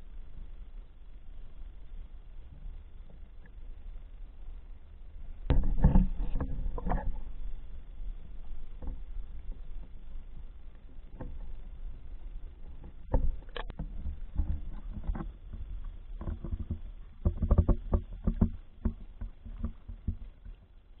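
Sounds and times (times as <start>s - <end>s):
low rumble: 0.0s - 21.0s
water splashing against camera housing: 12.5s - 20.7s.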